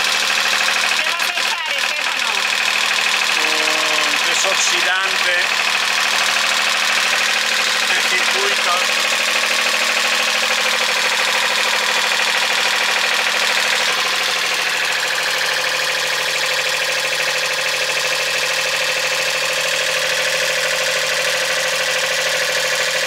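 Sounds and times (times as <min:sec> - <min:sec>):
boat engine running: 0:00.0 - 0:23.0.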